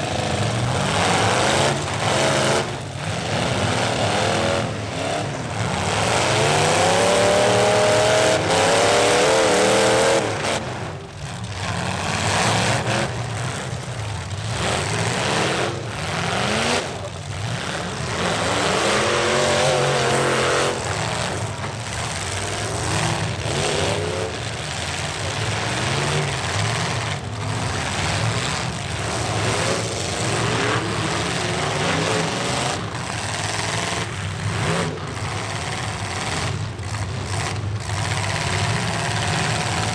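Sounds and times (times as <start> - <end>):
truck engines revving hard: 0.0 - 39.9.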